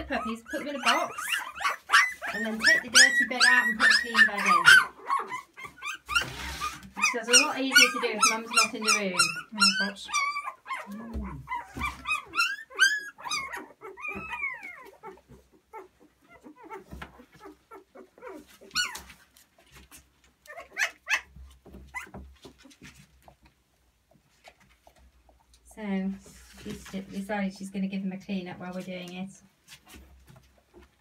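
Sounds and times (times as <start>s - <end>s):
puppies squealing and yelping: 0.0s - 23.3s.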